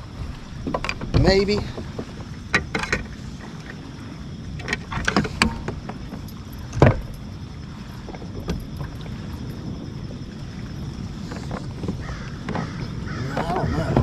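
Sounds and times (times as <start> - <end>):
gear knocking against kayak: 0.4 - 3.9, 4.5 - 7.4, 8.0 - 10.0, 10.7 - 14.0.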